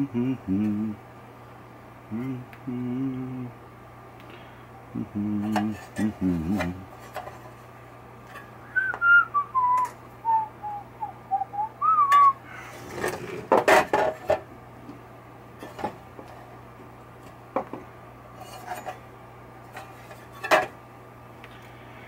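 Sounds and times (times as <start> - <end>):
man whistling tune: 8.7 - 12.4.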